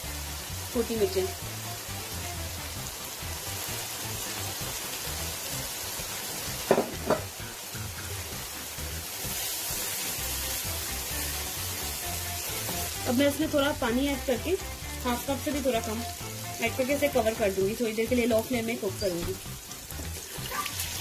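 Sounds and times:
spices sizzling in oil: 0.0s - 21.0s
spoon knocking on pan: 6.7s - 7.3s.

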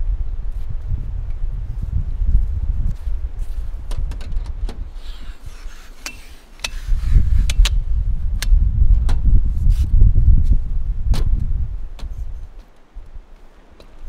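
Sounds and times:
low uneven rumble: 0.0s - 14.0s.

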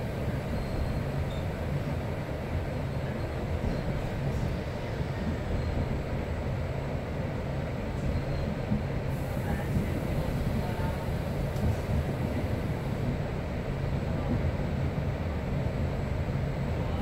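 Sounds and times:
train rumble inside carriage: 0.0s - 17.0s.

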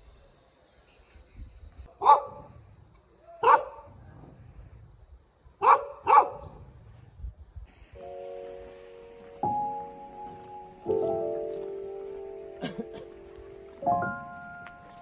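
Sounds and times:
dog barking: 2.0s - 2.5s, 3.4s - 3.9s, 5.6s - 6.5s
music: 8.0s - 15.0s.

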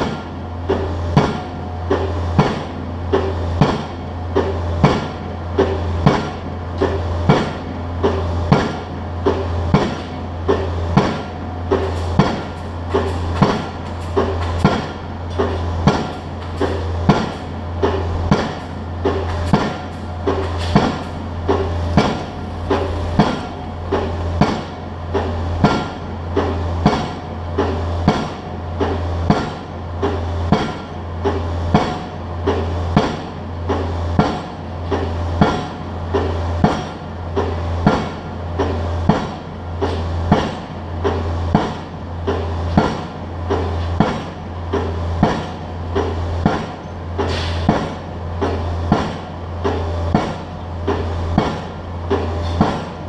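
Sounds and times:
low engine hum: 0.0s - 36.6s
pile driver hammer striking: 0.0s - 53.0s.

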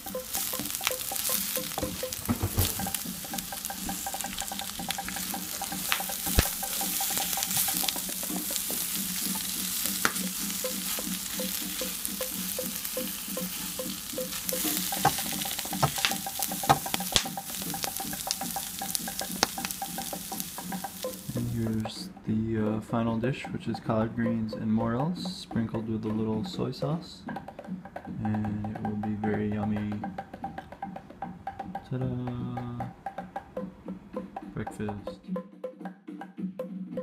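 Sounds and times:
greens sizzling in butter: 0.0s - 21.8s.

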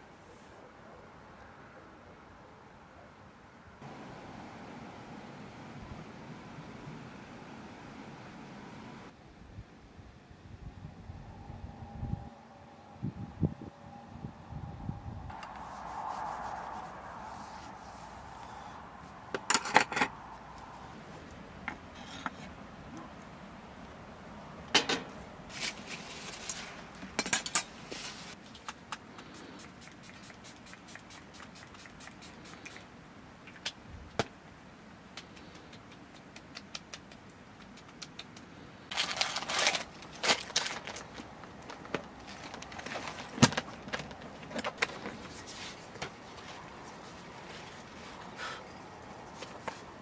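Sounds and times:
faint steady background noise: 0.0s - 50.0s
small objects clinking and rustling: 38.9s - 45.4s.

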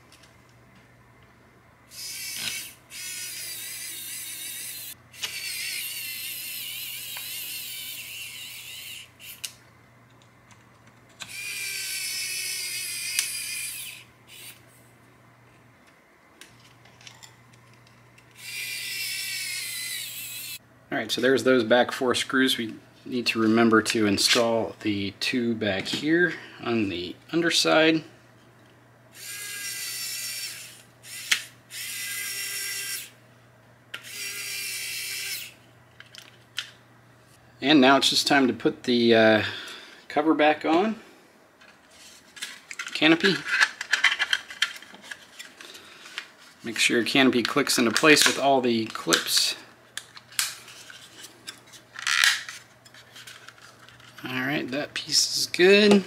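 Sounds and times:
electric screwdriver whining: 1.9s - 9.4s.

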